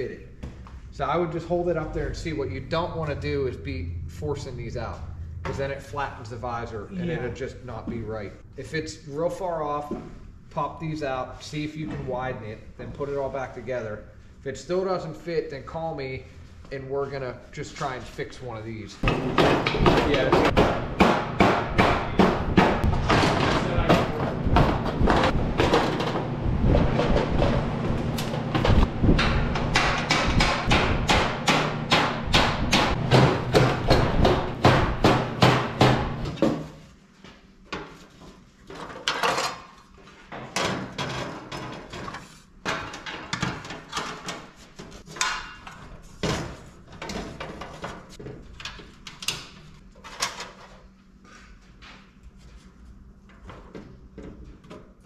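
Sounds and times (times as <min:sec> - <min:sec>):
wooden block knocking on sheet metal: 0:19.0 - 0:25.7, 0:29.2 - 0:36.6.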